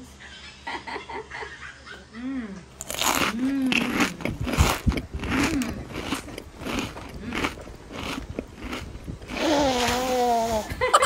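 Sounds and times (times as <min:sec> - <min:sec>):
crunchy chewing of fried chicken: 0:02.8 - 0:10.2.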